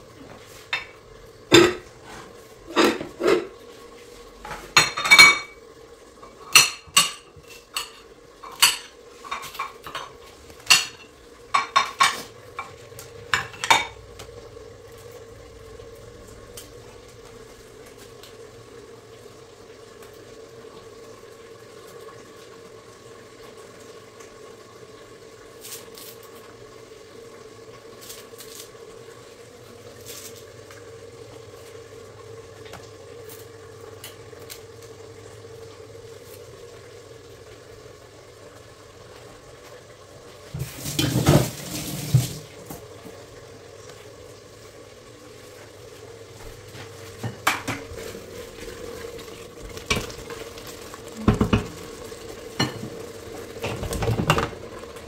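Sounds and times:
kitchenware clattering: 0:00.7 - 0:03.6, 0:04.5 - 0:05.6, 0:06.2 - 0:14.0, 0:40.6 - 0:42.4, 0:51.2 - 0:51.8, 0:52.5 - 0:54.6
wooden spoon knocking in pot: 0:51.2 - 0:51.8.

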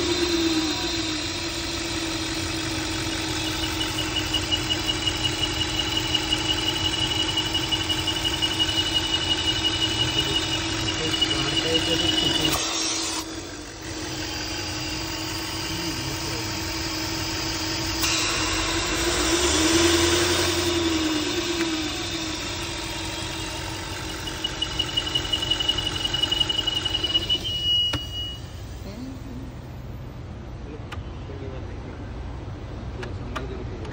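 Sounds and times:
car engine idling: 0:00.1 - 0:12.6, 0:13.2 - 0:30.8
thin high-pitched whistle: 0:24.3 - 0:28.6.

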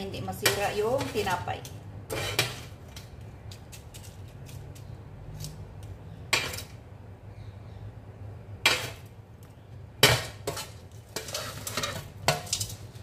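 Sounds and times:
knife scraping cutting board: 0:02.1 - 0:04.7, 0:10.2 - 0:12.7.

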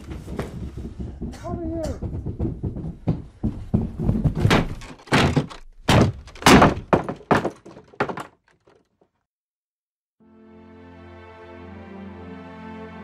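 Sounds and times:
heavy thuds and bangs: 0:00.0 - 0:08.4.

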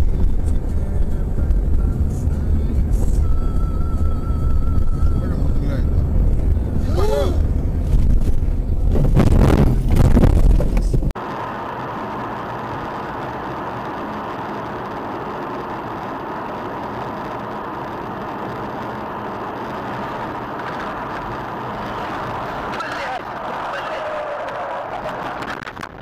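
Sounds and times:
road and engine noise inside car: 0:00.0 - 0:26.0
car crash rumbling and knocking: 0:07.4 - 0:11.1.

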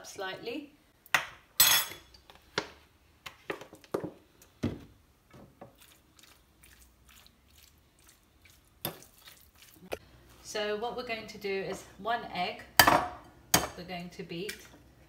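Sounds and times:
raw chicken squishing: 0:05.7 - 0:10.0.

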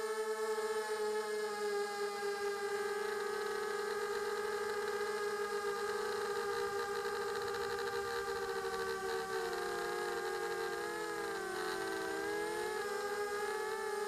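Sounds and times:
drone motors whining: 0:02.3 - 0:14.0.

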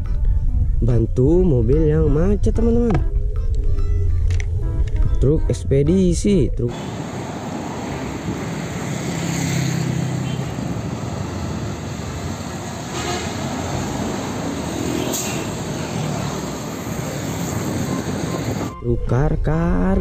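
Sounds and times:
motorcycles passing: 0:06.7 - 0:18.7
truck engine humming past: 0:06.7 - 0:18.8.

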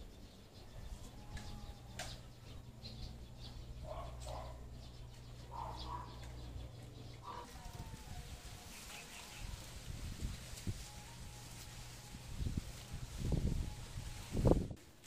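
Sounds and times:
lower bird calls: 0:00.0 - 0:09.7
birds chirping: 0:00.0 - 0:14.6
low steady hum: 0:00.0 - 0:15.0.

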